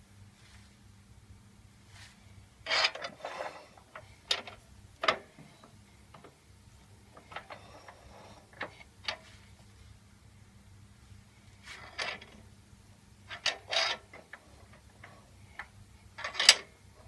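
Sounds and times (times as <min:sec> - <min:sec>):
faint steady hum: 0:00.0 - 0:17.0
metal clunks and scrapes: 0:02.7 - 0:06.3, 0:07.1 - 0:09.5, 0:11.7 - 0:12.4, 0:13.3 - 0:16.7.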